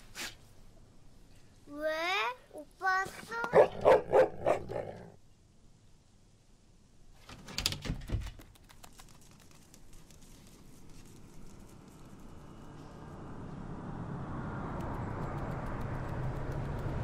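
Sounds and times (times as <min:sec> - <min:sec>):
dog paws tapping and scraping: 0:07.3 - 0:12.7.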